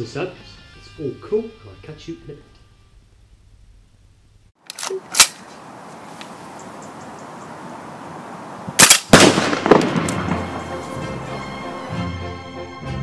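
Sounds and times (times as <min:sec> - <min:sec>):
gunshots: 0:04.7 - 0:05.4, 0:08.8 - 0:10.7
loud explosive bang: 0:09.1 - 0:10.6.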